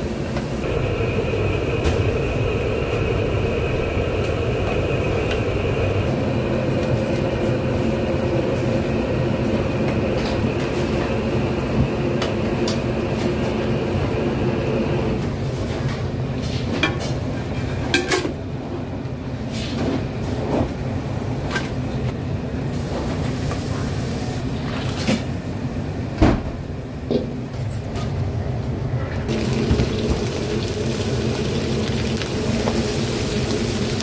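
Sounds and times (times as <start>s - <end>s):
low rumble of burners or extraction: 0.0s - 16.3s, 28.2s - 34.0s.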